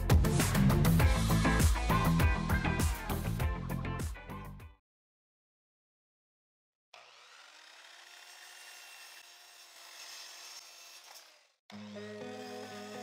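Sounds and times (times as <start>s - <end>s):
background music: 0.0s - 4.8s, 11.7s - 13.0s.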